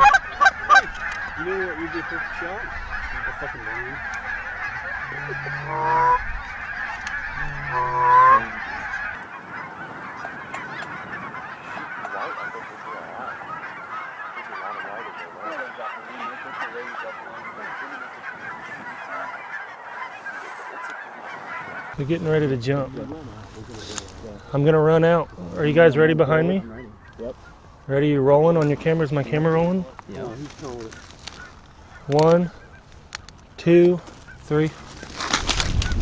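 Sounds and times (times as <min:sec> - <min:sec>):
loud rising goose calls: 0:00.0 - 0:22.6
geese honking: 0:00.0 - 0:36.0.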